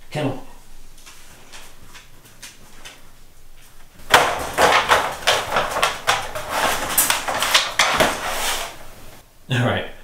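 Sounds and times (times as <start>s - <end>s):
wire crate rattling: 4.0s - 9.0s
dog paws clattering in crate: 4.1s - 8.8s.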